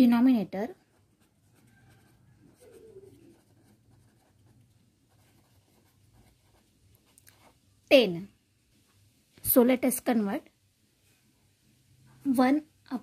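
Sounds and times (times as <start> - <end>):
pen scratching on paper: 0.7 - 7.6.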